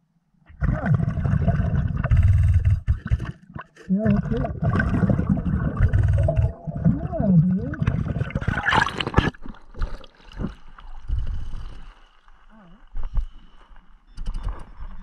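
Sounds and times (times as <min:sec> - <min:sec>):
underwater bubbling rumble: 0:00.5 - 0:12.0
water splashing: 0:02.9 - 0:12.2.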